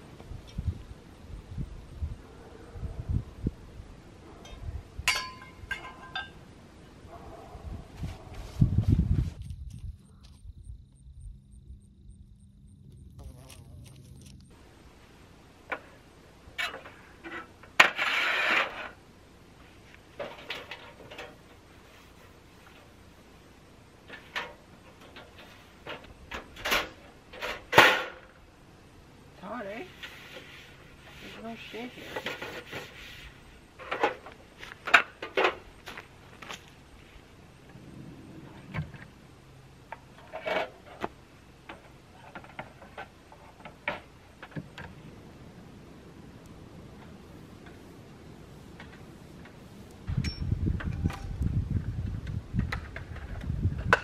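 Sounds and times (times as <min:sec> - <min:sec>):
camp stove clicks and rattles: 0:04.4 - 0:06.4, 0:20.2 - 0:21.6, 0:24.0 - 0:28.4
rattling scrape: 0:16.6 - 0:19.0, 0:29.9 - 0:34.2, 0:40.1 - 0:41.1.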